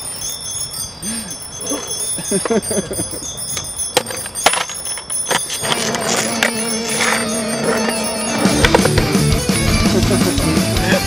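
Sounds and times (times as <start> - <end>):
bike knocking on concrete: 3.6 - 9.5.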